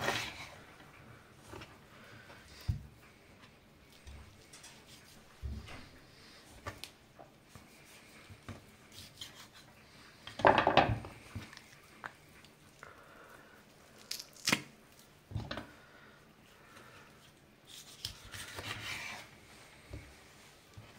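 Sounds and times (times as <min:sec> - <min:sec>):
hands handling meat: 0:00.0 - 0:12.8.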